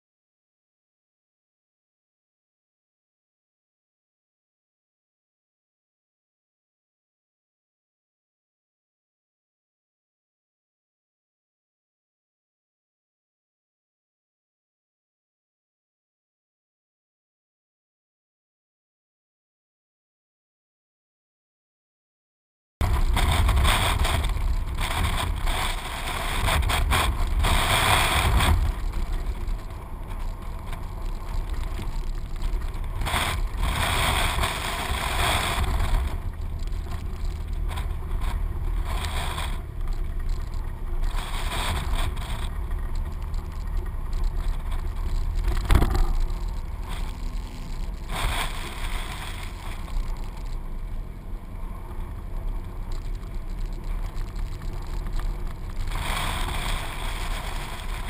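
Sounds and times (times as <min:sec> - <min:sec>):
car engine and road rumble: 0:22.8 - 0:58.0
wind gusting over microphone: 0:22.8 - 0:58.0.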